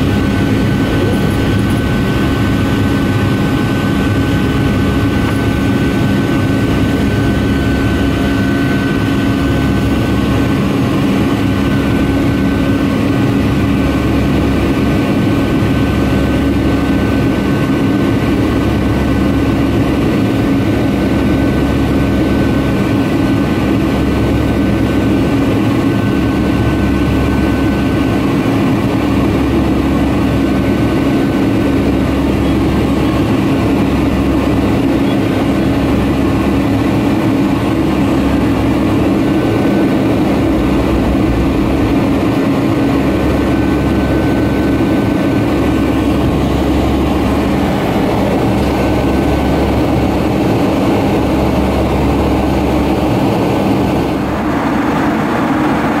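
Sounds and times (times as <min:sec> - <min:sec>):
low hum: 0:00.0 - 0:22.5, 0:24.0 - 0:56.0
high whine: 0:00.0 - 0:56.0
jet engines at climb power: 0:00.0 - 0:56.0
rushing air: 0:37.9 - 0:51.4, 0:53.0 - 0:56.0.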